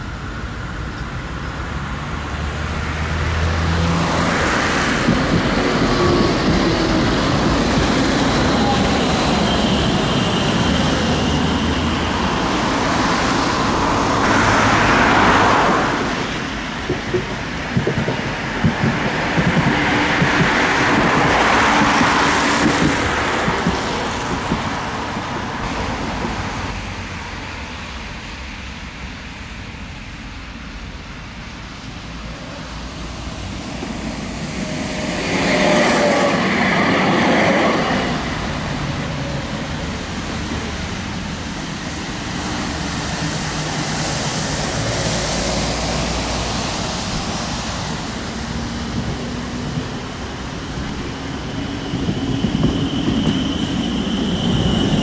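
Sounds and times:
tram rail rumble: 0.0s - 55.0s
thin wheel squeal: 51.6s - 55.0s.

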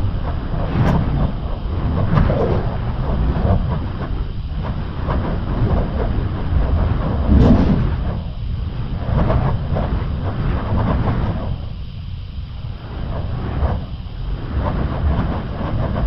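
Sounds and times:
wind buffeting microphone: 0.0s - 16.0s.

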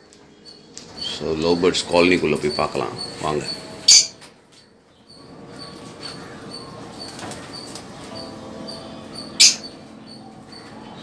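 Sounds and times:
faint high bird chirp: 0.0s - 11.0s.

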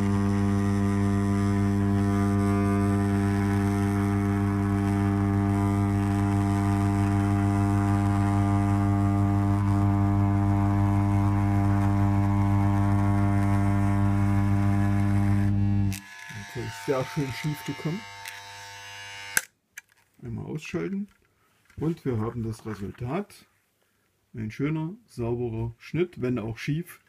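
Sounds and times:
electric scissors buzzing: 0.0s - 19.5s.

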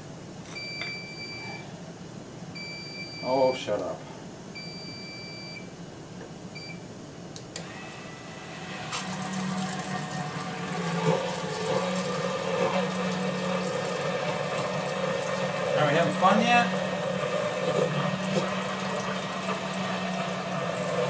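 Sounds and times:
electronic alarm beeping: 0.6s - 1.6s, 2.6s - 3.4s, 4.6s - 5.7s
pump humming: 7.6s - 21.0s.

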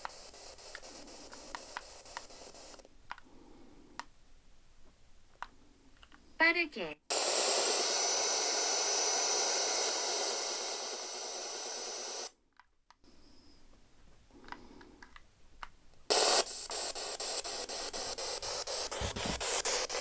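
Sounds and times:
radio static hiss: 0.0s - 2.9s, 7.1s - 12.3s, 16.1s - 20.0s
thin high whistle: 13.2s - 13.7s.

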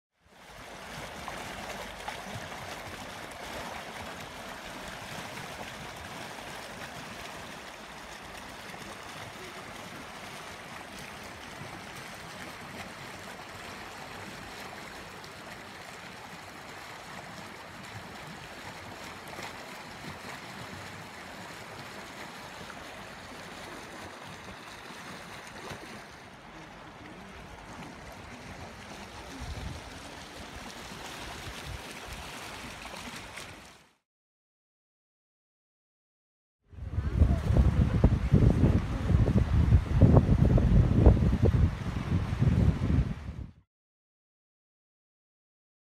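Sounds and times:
river rushing over gravel: 0.5s - 33.8s.

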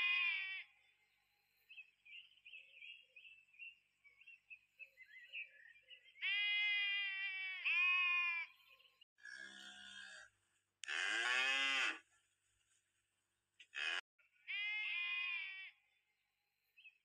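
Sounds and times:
goat bleating: 13.7s - 15.8s.

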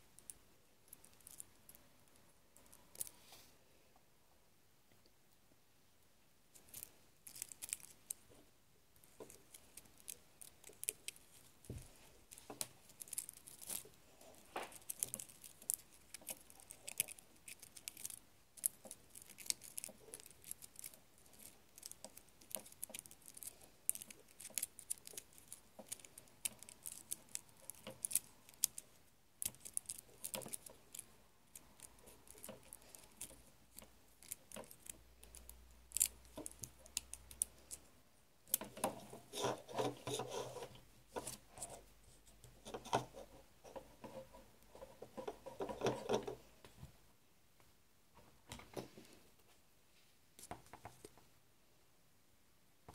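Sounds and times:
drinking straw clicks and crinkles: 9.1s - 37.9s.

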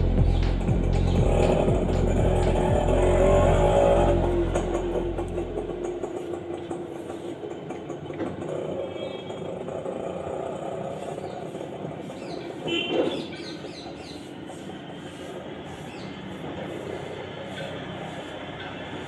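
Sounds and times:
vehicle engine running: 0.0s - 19.0s.

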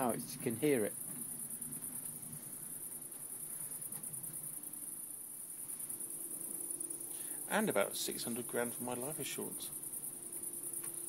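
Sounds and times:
crickets chirping: 0.0s - 11.0s.

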